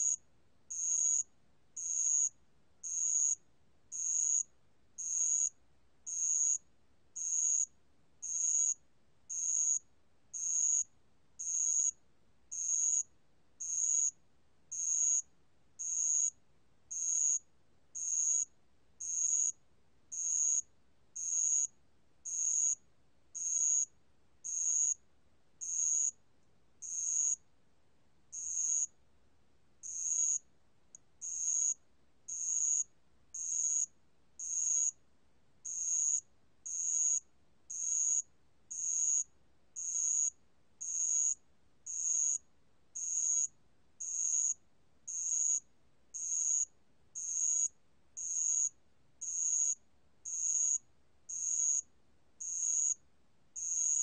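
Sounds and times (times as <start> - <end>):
cricket trilled chirp: 0.0 - 22.8, 23.4 - 25.0, 25.6 - 26.2, 26.8 - 27.4, 28.3 - 29.0, 29.8 - 30.5, 31.2 - 35.0, 35.6 - 53.0, 53.6 - 54.0.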